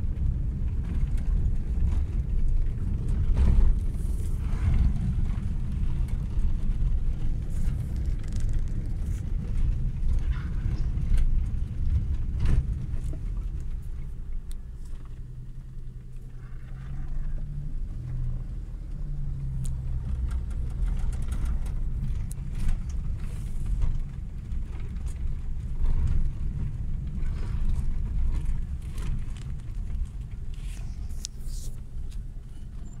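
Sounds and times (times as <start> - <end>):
car rumbling on dirt road: 0.0 - 33.0
engine hum: 0.0 - 33.0
light clicks and rattles: 18.8 - 33.0.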